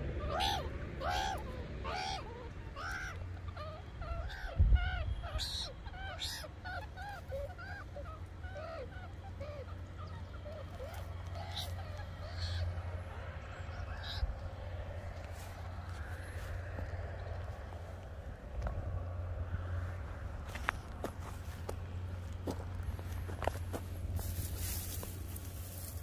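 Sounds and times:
meerkat pups chirping: 0:00.2 - 0:14.5.

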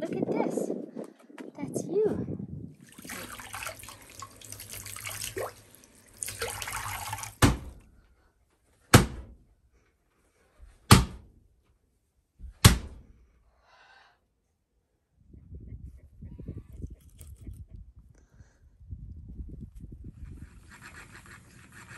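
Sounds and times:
water splashing and dripping: 0:02.8 - 0:07.8
wet yarn whacking a wooden wall: 0:06.2 - 0:07.9, 0:08.8 - 0:09.5, 0:10.7 - 0:11.4, 0:12.4 - 0:13.2.

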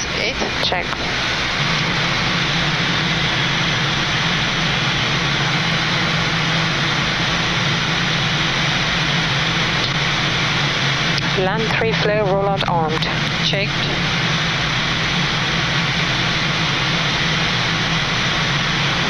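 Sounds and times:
airflow and air conditioning rush: 0:00.0 - 0:19.0
constant low hum: 0:00.0 - 0:19.0.

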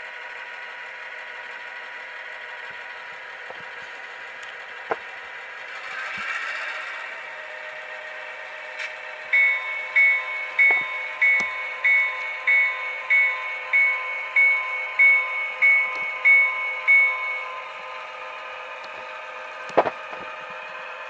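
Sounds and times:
diesel engine sound: 0:00.0 - 0:21.0
locomotive bell ringing: 0:09.3 - 0:18.7.

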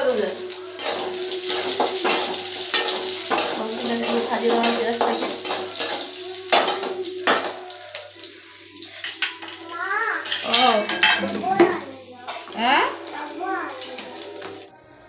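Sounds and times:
oil sizzling: 0:00.0 - 0:14.7
metal spatula scraping a pan: 0:00.5 - 0:11.4, 0:12.2 - 0:13.1.

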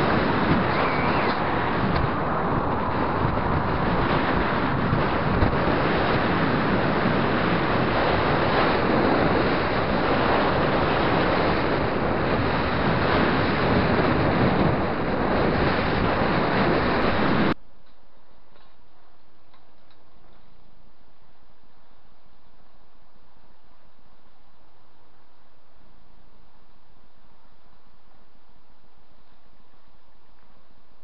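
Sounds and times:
wind rushing over microphone: 0:00.0 - 0:17.6.

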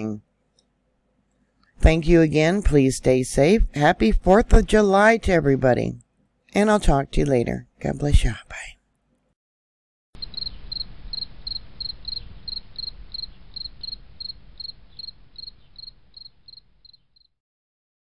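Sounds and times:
cricket chirping: 0:10.2 - 0:17.3.

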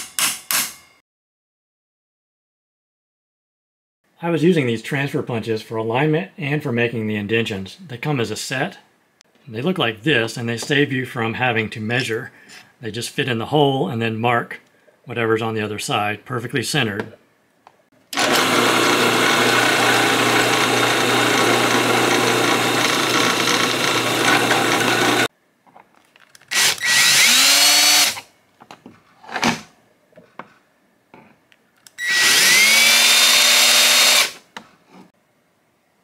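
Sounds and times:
cordless drill whine: 0:18.2 - 0:25.3, 0:26.5 - 0:28.2, 0:32.0 - 0:34.4
drill press drilling steel: 0:18.2 - 0:25.3, 0:32.0 - 0:34.4.

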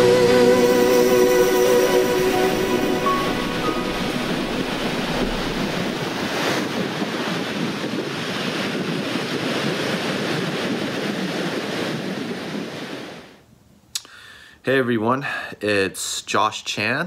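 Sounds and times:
ocean waves washing ashore: 0:00.0 - 0:13.4.

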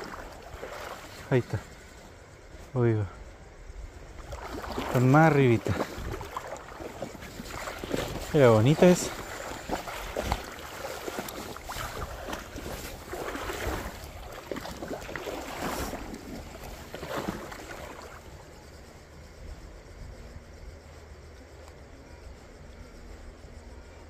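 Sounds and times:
river water splashing: 0:00.0 - 0:02.5, 0:03.8 - 0:19.0
wind on microphone: 0:03.2 - 0:18.2.

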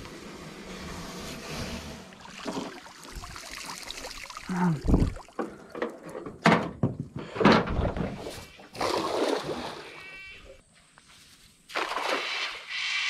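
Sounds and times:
water splashing: 0:02.1 - 0:06.0, 0:08.4 - 0:10.1, 0:11.7 - 0:12.8.

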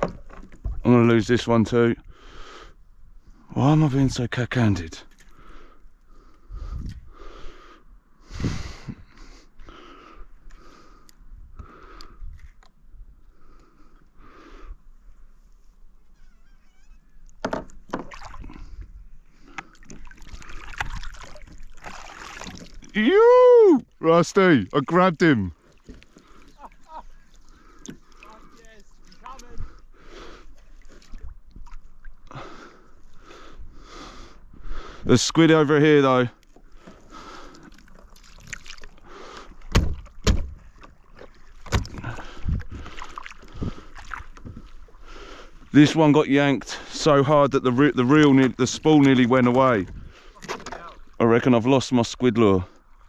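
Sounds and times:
knocks and clatter on hull: 0:00.0 - 0:00.9, 0:39.7 - 0:42.7
water splashing against kayak: 0:15.0 - 0:34.8, 0:36.0 - 0:51.5.

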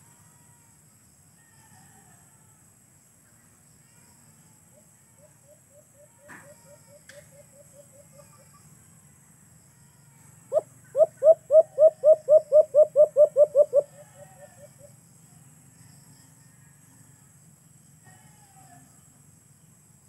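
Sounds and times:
dove cooing: 0:10.5 - 0:14.8.

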